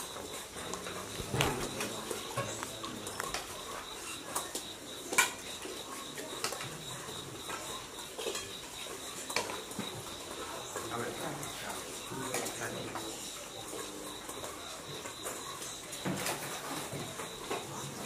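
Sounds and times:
spoons clinking against steel bowls: 7.4 - 14.0.

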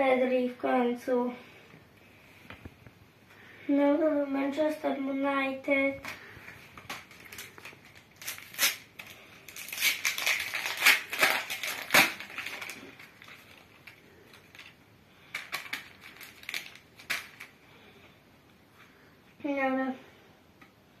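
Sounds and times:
foil wrapper tearing and crinkling: 6.0 - 17.6.

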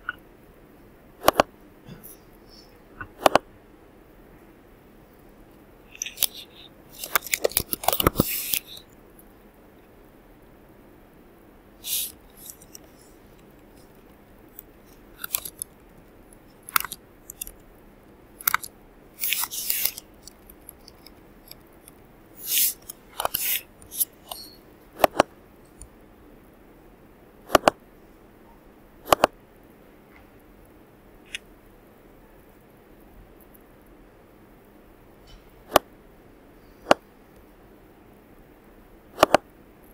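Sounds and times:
mouse clicks: 1.2 - 1.5, 3.0 - 3.4, 18.4 - 25.9, 27.5 - 27.8, 29.1 - 29.3, 39.2 - 39.4.

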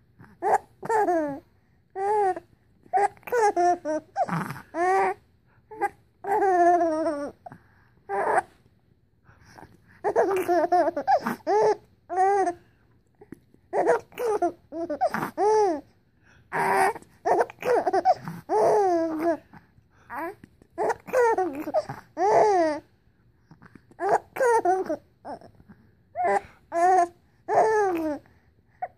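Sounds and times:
baby giggling: 0.4 - 1.4, 10.0 - 12.6, 13.8 - 15.8, 16.6 - 19.4, 20.8 - 22.8, 24.0 - 25.4.

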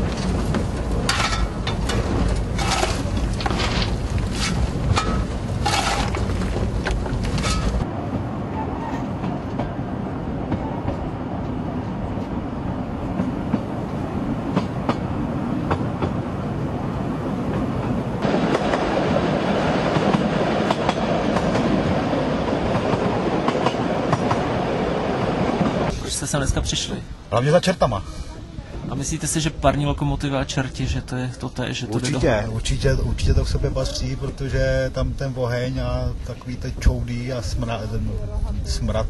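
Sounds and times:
fire iron clanking in firebox: 0.0 - 7.8
steam train rumbling and clattering: 0.0 - 27.0.

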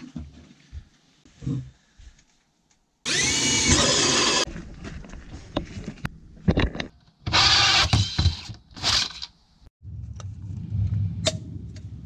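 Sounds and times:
drill with hole saw: 3.1 - 4.5, 7.2 - 9.3.

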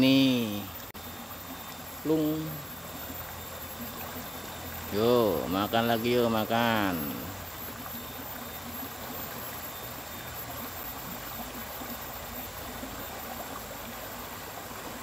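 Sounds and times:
river water flowing: 0.0 - 15.0.

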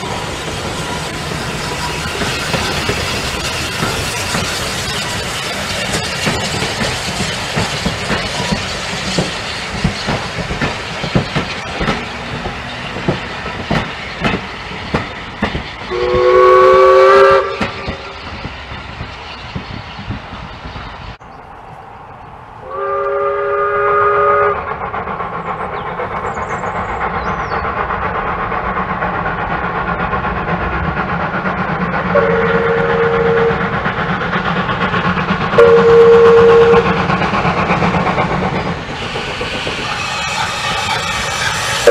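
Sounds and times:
train wheels clicking over rail joints: 0.0 - 21.2, 24.2 - 41.9
steam locomotive whistle: 15.9 - 18.2, 22.6 - 24.7, 32.1 - 33.8, 35.6 - 37.0, 39.0 - 41.9.

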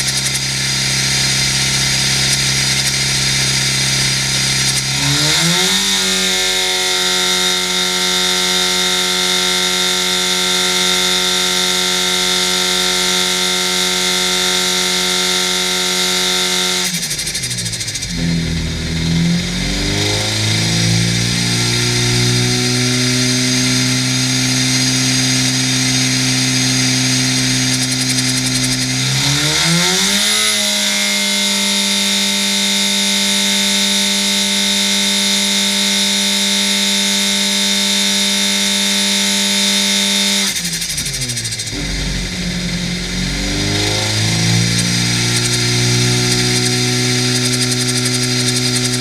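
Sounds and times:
engine running under load: 0.0 - 49.0
supercharger whine: 0.0 - 49.0.

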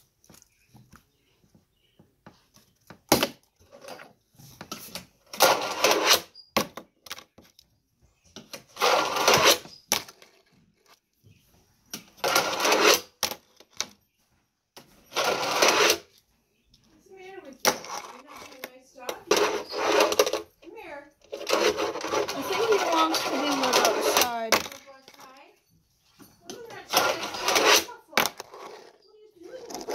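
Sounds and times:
fingerboard wheels rolling on ramp: 5.2 - 6.3, 8.6 - 10.5, 12.2 - 13.4, 15.1 - 16.1, 17.6 - 18.6, 19.2 - 20.5, 21.3 - 24.8, 26.9 - 29.9.

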